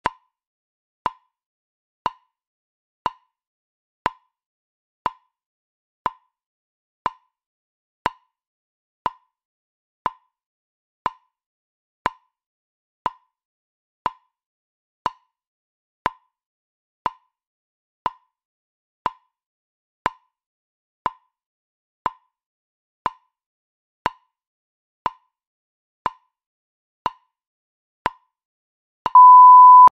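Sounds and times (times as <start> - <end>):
long steady beep: 29.2 - 29.9.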